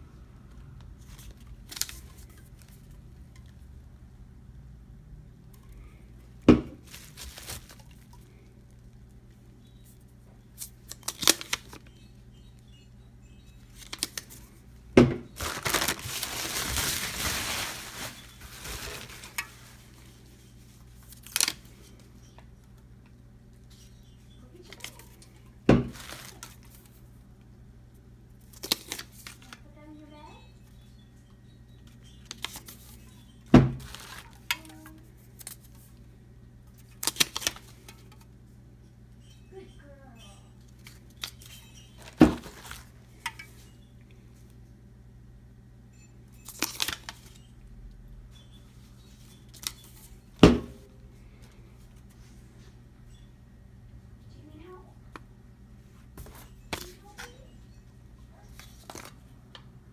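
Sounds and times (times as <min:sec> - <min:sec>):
plastic crinkling: 0:06.8 - 0:09.0, 0:15.3 - 0:21.8, 0:25.8 - 0:27.0, 0:33.8 - 0:36.0, 0:40.8 - 0:43.4.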